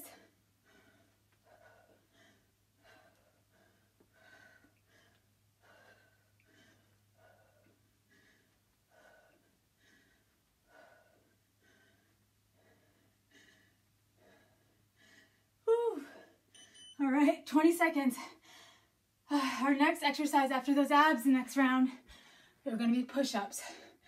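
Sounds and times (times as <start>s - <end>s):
woman breathing hard: 0.0s - 16.5s, 22.0s - 22.6s.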